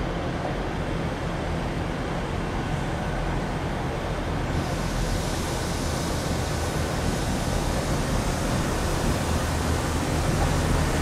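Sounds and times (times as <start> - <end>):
train diesel engine: 0.0 - 11.0
train wheels on rails: 0.0 - 11.0
brake hiss: 4.5 - 11.0.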